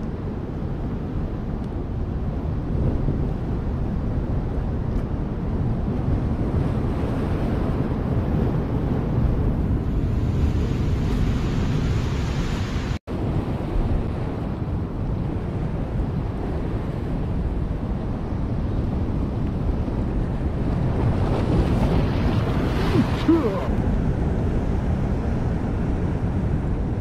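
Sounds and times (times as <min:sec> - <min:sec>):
wind buffeting microphone: 0:00.0 - 0:27.0
ocean surf washing against rocks: 0:19.1 - 0:25.0.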